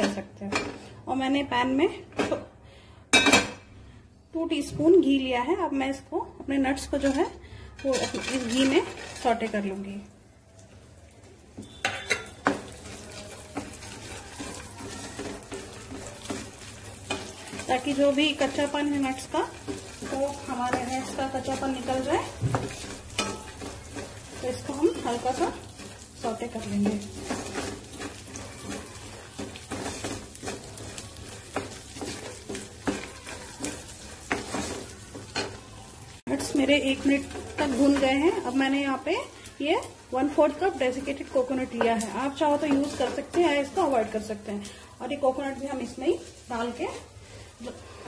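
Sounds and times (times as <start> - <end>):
nuts sizzling in a pan: 4.5 - 48.0
spatula scraping a pan: 7.0 - 9.6, 11.6 - 48.0
spatula clacking against pan: 11.6 - 35.6, 40.5 - 44.2.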